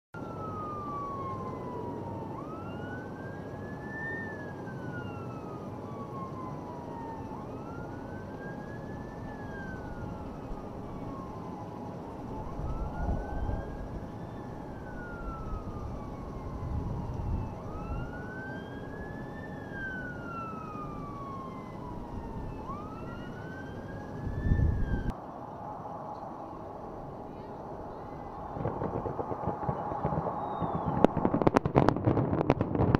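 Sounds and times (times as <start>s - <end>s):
siren wailing: 0.2s - 25.2s, 27.3s - 32.9s
low rumbles: 26.2s - 32.9s.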